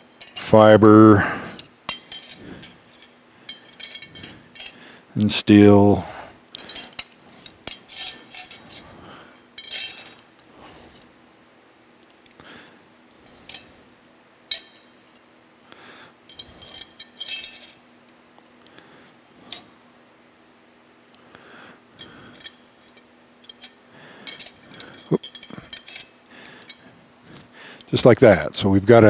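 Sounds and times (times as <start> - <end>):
metal clutch plates clinking: 1.9 - 4.8.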